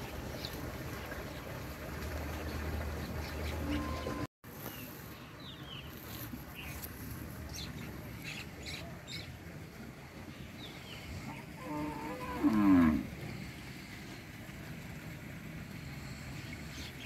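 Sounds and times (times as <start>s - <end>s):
water buffalo lowing: 10.9s - 14.1s.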